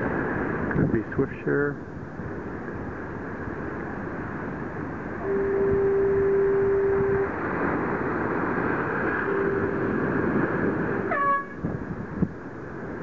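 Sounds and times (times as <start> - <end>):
wind noise on microphone: 0.0 - 1.2, 1.8 - 13.0
short rising horn toot: 5.2 - 7.4, 9.2 - 10.0
horn blasts: 5.2 - 7.5, 9.2 - 11.7.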